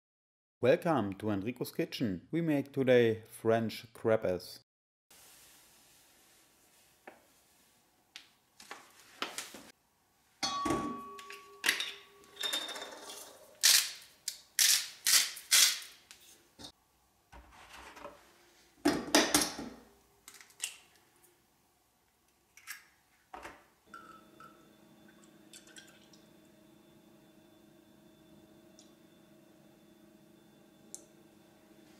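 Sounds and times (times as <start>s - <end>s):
short ringing tone: 10.4s - 12.9s
bowl and utensils clinking: 10.4s - 13.5s.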